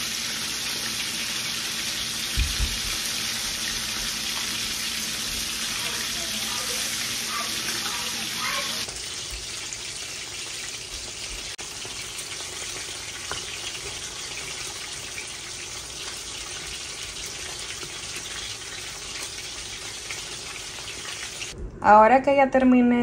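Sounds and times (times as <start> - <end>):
pot of beans hissing: 0.0 - 8.9.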